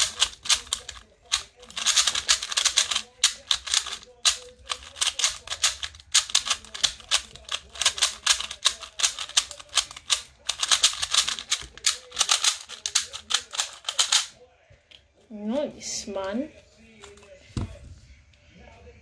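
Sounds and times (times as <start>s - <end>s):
plastic puzzle cube clicking: 0.0s - 14.3s.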